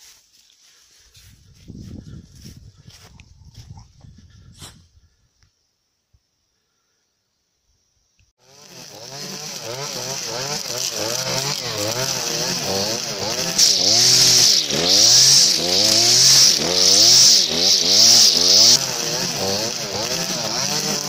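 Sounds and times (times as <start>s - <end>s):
string trimmer engine revving: 8.4s - 21.0s
trimmer line cutting grass: 8.4s - 21.0s.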